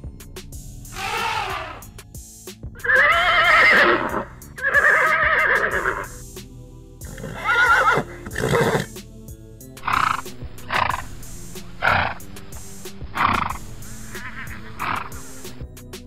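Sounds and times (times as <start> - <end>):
background music: 0.0 - 16.0
horse whinnying: 0.9 - 1.9, 2.8 - 6.1, 7.0 - 8.9, 13.2 - 15.3.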